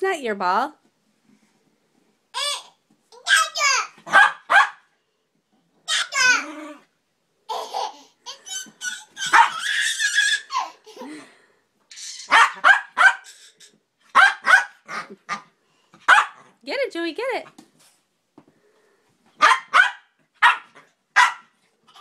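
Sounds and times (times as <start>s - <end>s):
small dog barking: 4.0s - 4.9s, 9.2s - 9.7s, 12.3s - 13.3s, 14.1s - 15.4s, 16.0s - 16.5s, 19.4s - 21.6s
toddler laughing and squealing: 5.9s - 6.8s, 7.5s - 11.3s, 11.9s - 12.5s, 13.1s - 13.8s.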